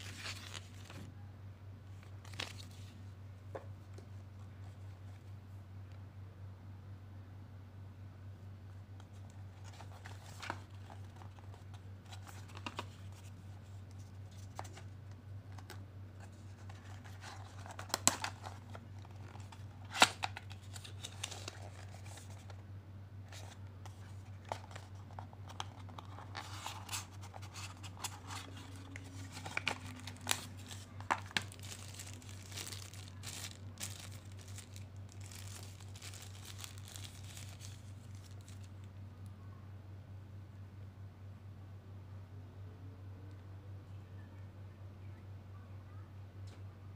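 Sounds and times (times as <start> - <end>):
plastic wrapping crinkling: 0.0 - 1.1, 2.0 - 3.0, 15.6 - 22.6, 23.3 - 38.9
steady low hum: 0.0 - 46.9.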